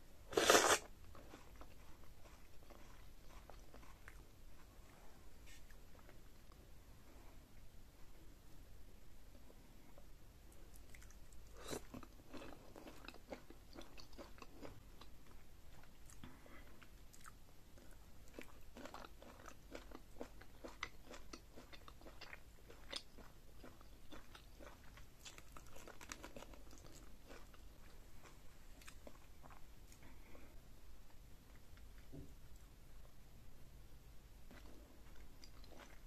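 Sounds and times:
close-miked chewing: 0.4s - 4.8s, 10.5s - 30.5s, 34.5s - 36.0s.

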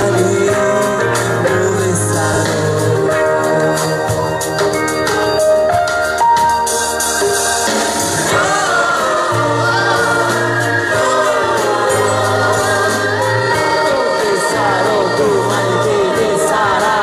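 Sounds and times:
instrumental backing: 0.0s - 17.0s
group singing in harmony: 7.2s - 17.0s.

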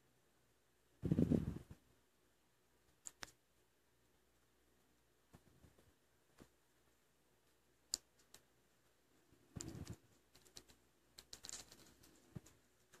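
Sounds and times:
soft clicks: 2.9s - 3.4s, 7.5s - 8.5s.

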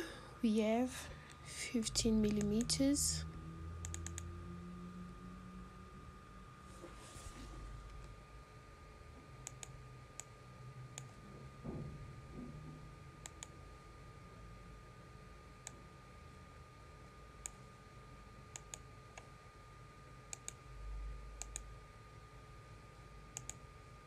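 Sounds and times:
thin steady hum: 0.0s - 24.0s.

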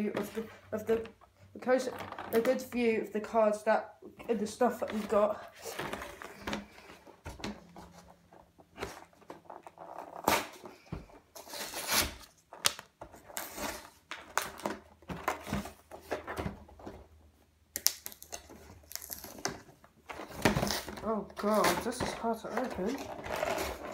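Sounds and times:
cardboard box scraping and rustling: 20.1s - 23.9s.

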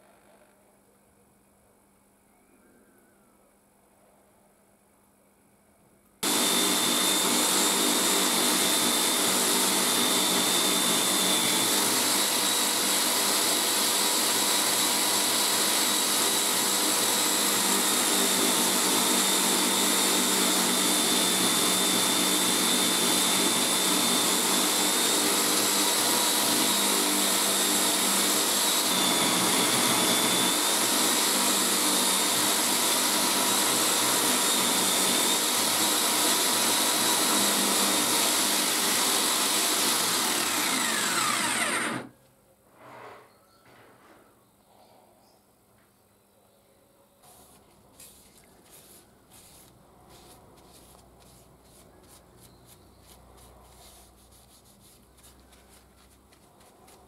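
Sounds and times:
electric motor whining: 6.2s - 42.1s
knife handle buffed on wheel: 47.4s - 57.0s.

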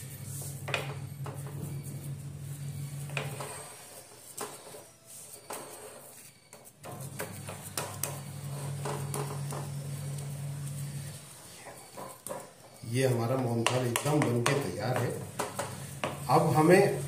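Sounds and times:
steady low hum: 0.0s - 4.1s, 6.8s - 12.0s
taps and scrapes on metal tray: 13.6s - 16.3s.

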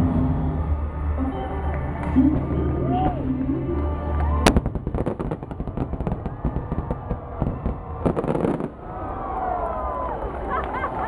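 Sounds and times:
fireworks crackling and popping: 4.2s - 8.9s
firework boom: 4.4s - 8.9s.

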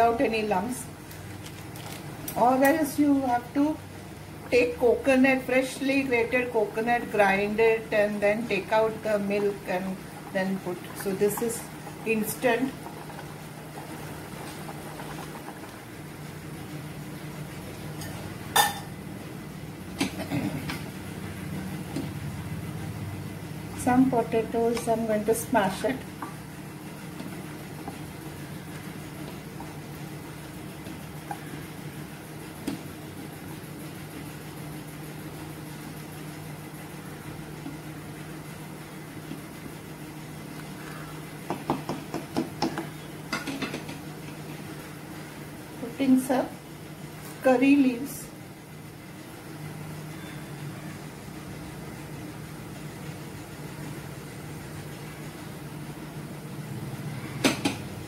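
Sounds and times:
appliance motor hum: 0.0s - 58.0s
spatula knocking on pot: 41.5s - 43.8s.

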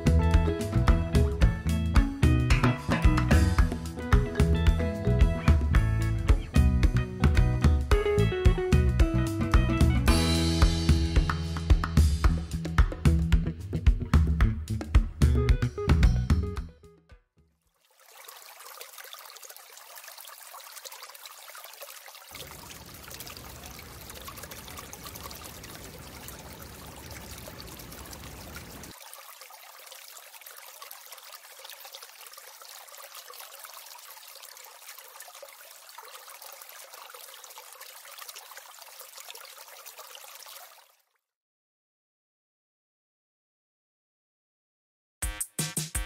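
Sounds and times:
water trickling and pouring: 17.6s - 41.2s
water rushing: 17.8s - 41.0s.

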